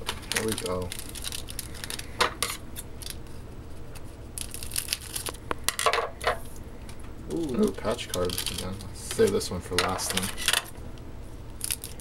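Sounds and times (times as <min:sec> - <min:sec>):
wrapper rustling and crinkling: 0:00.0 - 0:02.2, 0:03.0 - 0:05.4, 0:07.7 - 0:09.5, 0:11.6 - 0:12.0.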